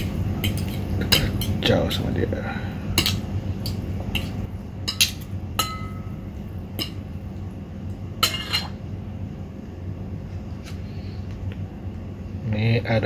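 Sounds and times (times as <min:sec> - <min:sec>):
forks clinking against ceramic bowl: 0:00.0 - 0:01.6, 0:03.0 - 0:06.1, 0:08.2 - 0:08.8.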